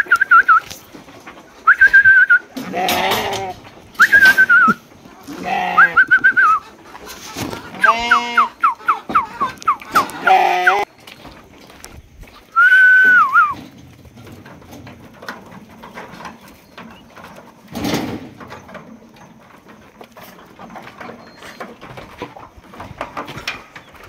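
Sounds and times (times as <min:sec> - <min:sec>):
hooves knocking and scuffing on wood: 0:00.0 - 0:24.0
lamb calling: 0:05.2 - 0:06.7, 0:07.7 - 0:10.9.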